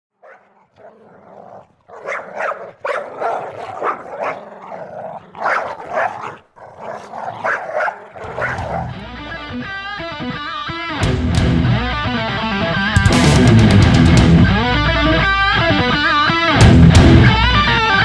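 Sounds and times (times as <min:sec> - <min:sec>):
animal making rough vocal bursts: 0:00.6 - 0:09.4.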